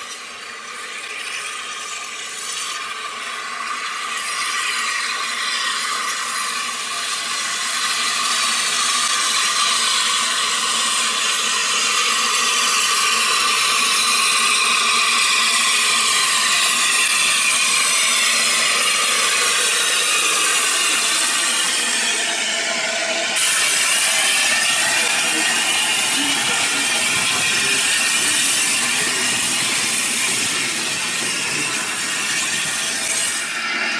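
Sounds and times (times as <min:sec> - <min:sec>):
steam hissing: 0:00.0 - 0:33.9
steam locomotive approaching: 0:00.0 - 0:33.9.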